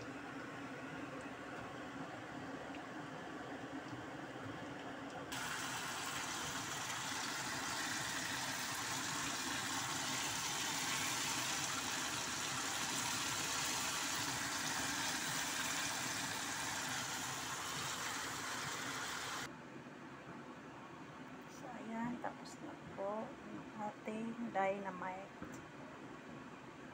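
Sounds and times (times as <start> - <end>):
oil sizzling in frying pan: 5.3 - 19.5.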